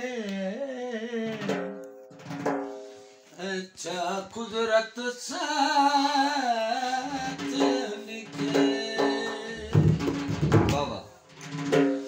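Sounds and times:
man singing folk melody: 0.0s - 1.7s, 3.4s - 10.0s.

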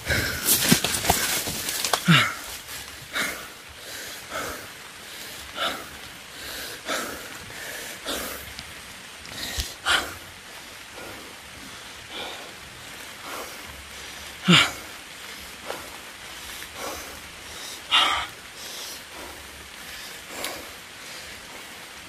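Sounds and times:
dry corn leaves rustling: 0.0s - 3.6s
soft regular breathing: 0.0s - 22.0s.

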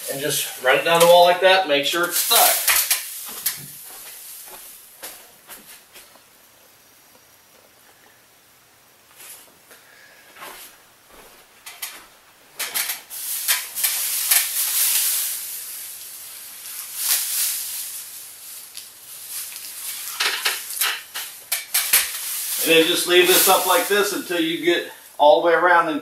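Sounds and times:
plastic sheeting crinkling: 0.0s - 6.2s, 11.9s - 25.3s.

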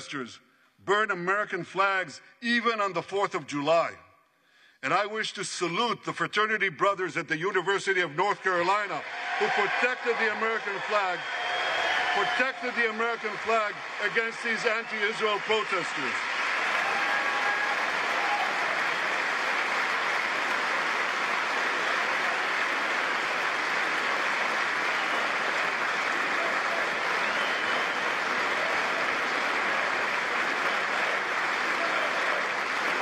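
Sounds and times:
crowd applauding: 8.8s - 33.0s.

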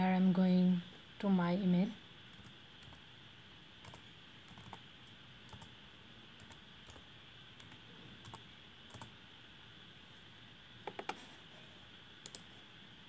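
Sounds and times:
faint steady hiss: 0.0s - 13.0s
computer keyboard typing: 2.3s - 3.0s, 3.8s - 5.7s, 6.4s - 9.1s, 10.8s - 11.2s, 12.2s - 12.5s.

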